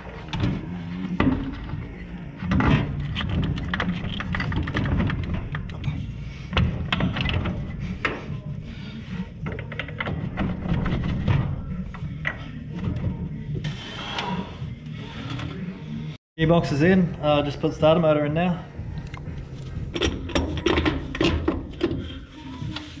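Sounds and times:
metal parts knocking and clinking: 0:02.5 - 0:08.2, 0:19.8 - 0:22.0.

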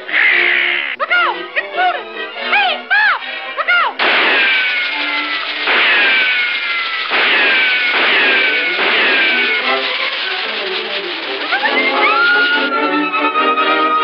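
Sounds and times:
cartoon fiery whooshes: 0:04.0 - 0:12.7
falling whistle: 0:04.2 - 0:14.0.

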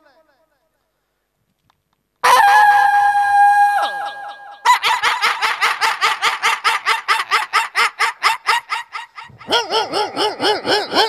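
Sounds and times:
man imitating yapping puppies: 0:09.4 - 0:11.0.

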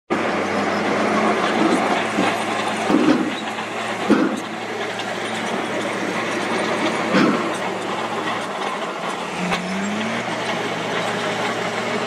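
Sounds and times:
diesel truck engines running: 0:00.1 - 0:12.0
metallic clunks and rattles: 0:01.5 - 0:09.7.

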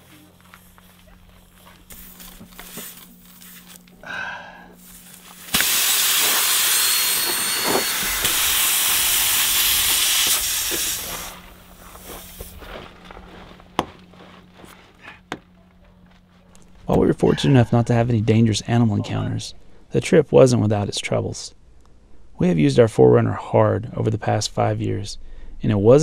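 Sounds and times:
compressed air hissing: 0:04.6 - 0:12.6.

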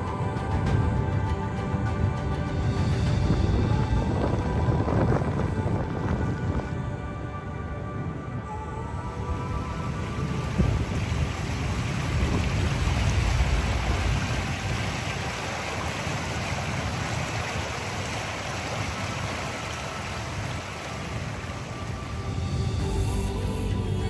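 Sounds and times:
wind buffeting microphone: 0:02.8 - 0:23.0
river water rushing: 0:09.0 - 0:23.4.

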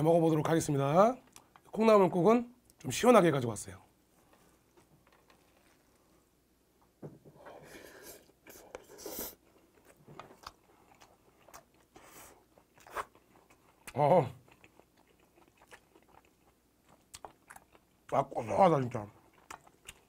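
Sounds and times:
chewing with wet smacking: 0:09.5 - 0:18.2, 0:19.2 - 0:20.0.

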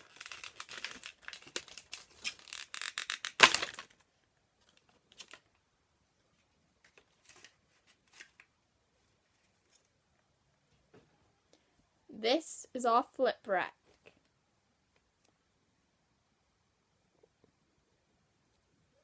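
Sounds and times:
plastic packaging crinkling: 0:00.0 - 0:04.0.

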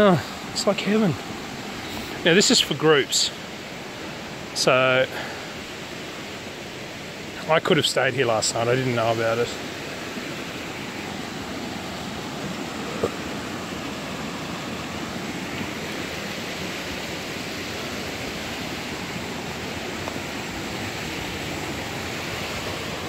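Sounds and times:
water rushing over rocks: 0:00.0 - 0:23.0.

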